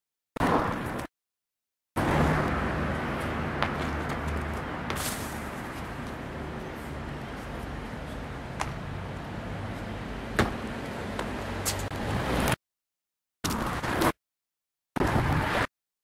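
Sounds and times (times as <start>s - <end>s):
low traffic rumble: 2.0s - 12.6s
hands and feet striking brick wall: 3.2s - 6.2s, 8.5s - 8.8s, 10.3s - 12.0s.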